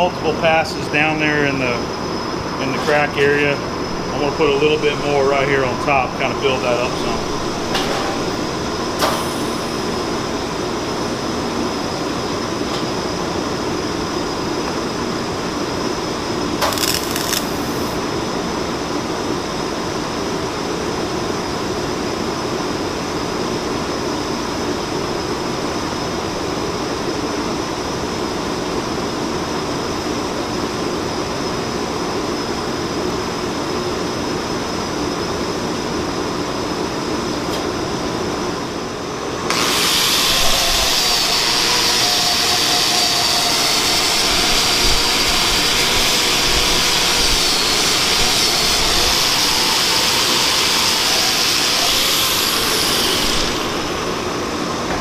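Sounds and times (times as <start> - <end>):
fume extractor humming: 0.0 - 18.1
welding arc crackling hiss: 2.6 - 11.2, 16.5 - 18.0, 39.5 - 54.7.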